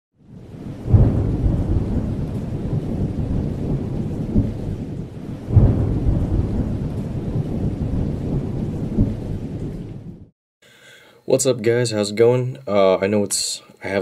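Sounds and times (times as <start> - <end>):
deep thunder-like rumble: 0.2 - 10.3
heavy boom: 0.9 - 3.3, 5.5 - 10.3.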